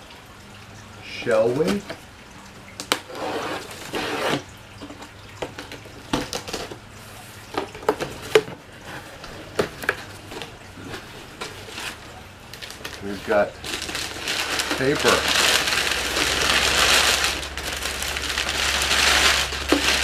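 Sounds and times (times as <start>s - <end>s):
packing tape tearing: 12.6s - 20.0s.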